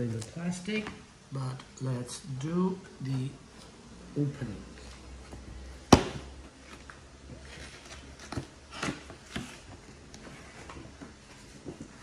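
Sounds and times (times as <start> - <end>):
cardboard and plastic rustling: 4.8 - 12.0.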